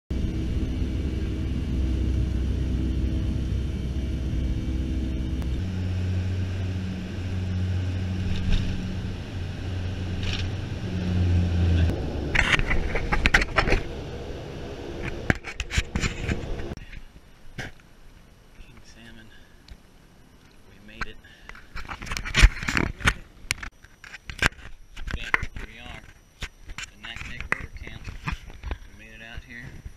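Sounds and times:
airliner cabin engine rumble: 0:00.1 - 0:16.9.

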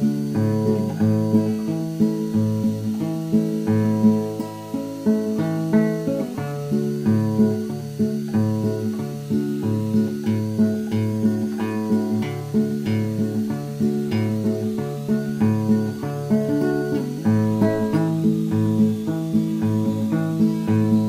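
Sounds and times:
acoustic guitar music: 0:00.0 - 0:21.0.

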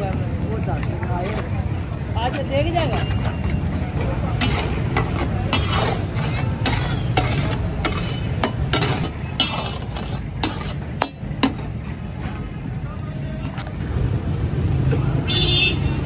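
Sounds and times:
metal spatula striking iron pan: 0:04.4 - 0:11.8.

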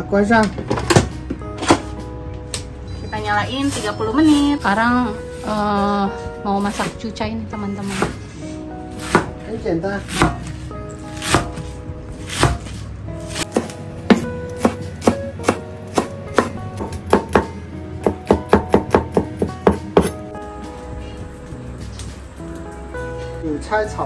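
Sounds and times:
cleaver chopping on wooden board: 0:09.0 - 0:09.3, 0:10.1 - 0:10.6, 0:11.2 - 0:11.6, 0:12.3 - 0:20.2.

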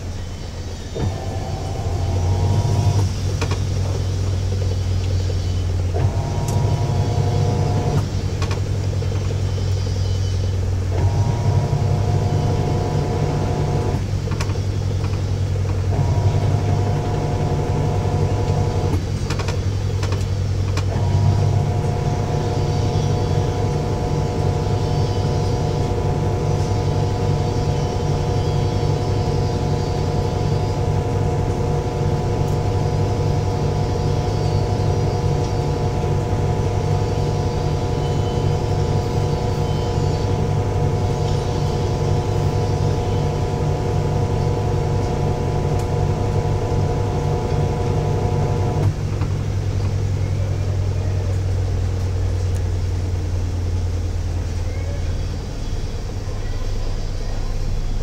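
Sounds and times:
washing machine high whine: 0:00.0 - 0:58.0
washing machine motor hum: 0:00.0 - 0:58.0.

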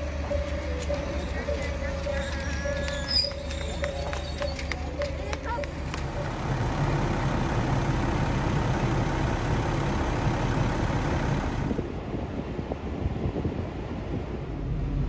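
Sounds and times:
diesel engine idling: 0:00.0 - 0:11.9.

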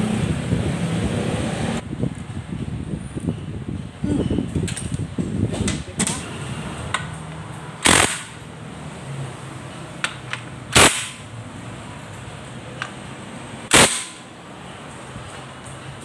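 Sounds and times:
impact wrench hammering bolts: 0:07.8 - 0:08.4.

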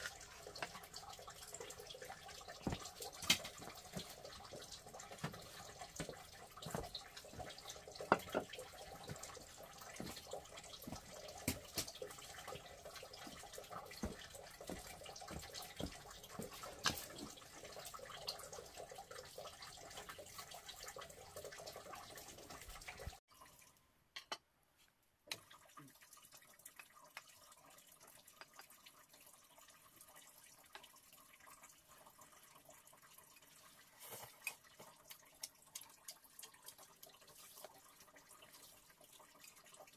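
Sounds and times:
water trickling and splashing: 0:00.0 - 0:24.0, 0:25.2 - 0:39.9.

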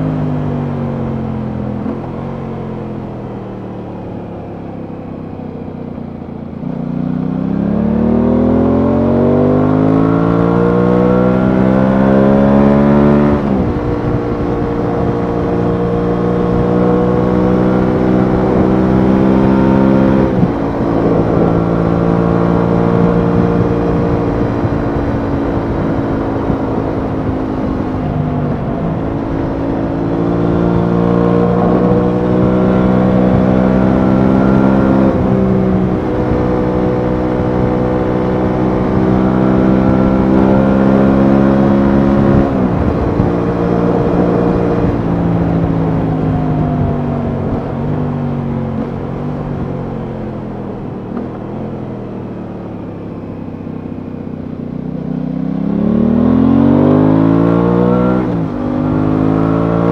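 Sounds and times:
motorcycle engine revving: 0:00.0 - 0:59.9
wind on microphone: 0:10.0 - 0:51.8.

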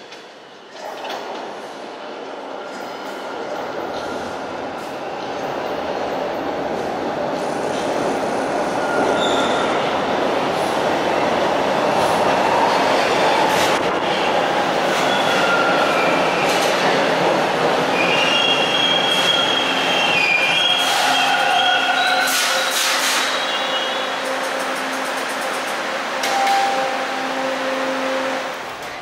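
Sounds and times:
subway train wheels rumbling: 0:00.0 - 0:29.0
high wheel squeals: 0:08.8 - 0:09.7.

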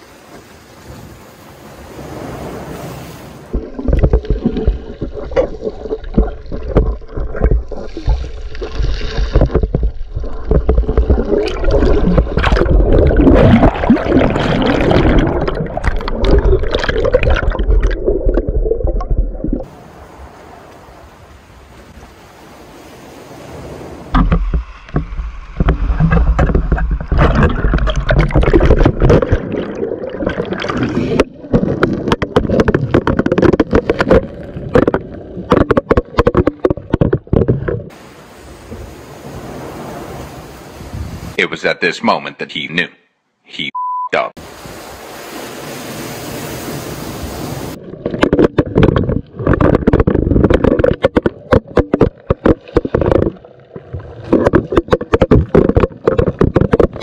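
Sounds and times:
small waves on a pebble beach: 0:00.0 - 0:03.6, 0:19.7 - 0:24.2, 0:37.9 - 0:41.3, 0:44.4 - 0:47.8
water sloshing underwater: 0:03.2 - 0:21.0, 0:21.6 - 0:40.9, 0:46.7 - 0:57.0
splashes and knocks: 0:03.5 - 0:19.7, 0:24.1 - 0:38.0, 0:47.7 - 0:57.0.

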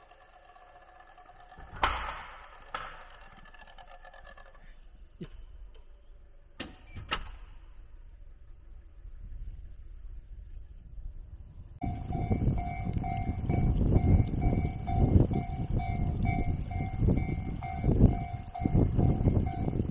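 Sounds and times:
wind rumble on microphone: 0:08.4 - 0:19.9.

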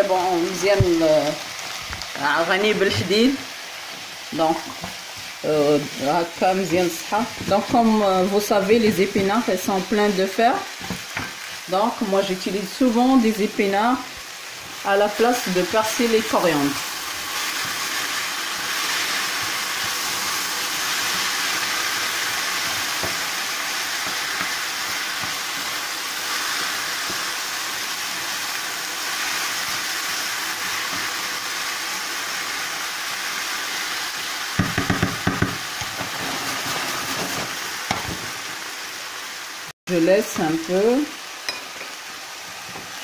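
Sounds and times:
vegetables sizzling in oil: 0:00.0 - 0:43.0
spatula scraping a pan: 0:35.8 - 0:37.6.

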